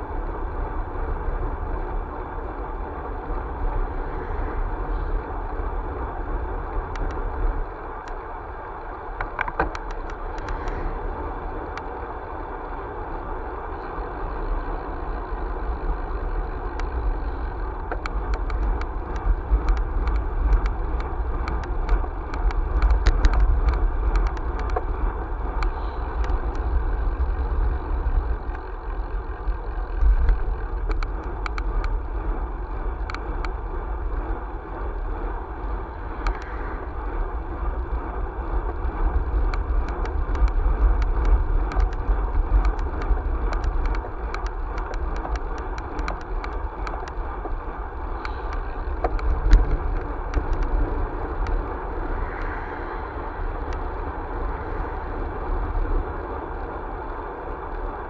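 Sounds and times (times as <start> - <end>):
tyres rumbling on asphalt: 0.0 - 58.0
wind buffeting microphone: 0.0 - 58.0
small rattling clicks: 6.8 - 7.4, 8.8 - 10.9, 15.2 - 35.0, 35.6 - 37.0, 38.5 - 52.8.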